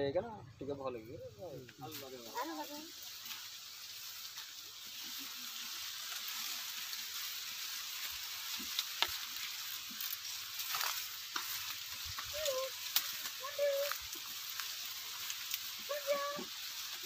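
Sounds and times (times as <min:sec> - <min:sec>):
dry leaves rustling underfoot: 0:01.2 - 0:17.0
stalks snapping: 0:08.5 - 0:15.7.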